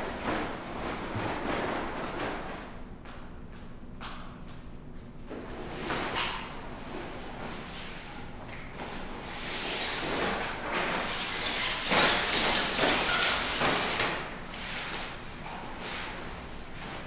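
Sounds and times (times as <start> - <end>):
sheets dragged across hard floor: 9.3 - 14.0.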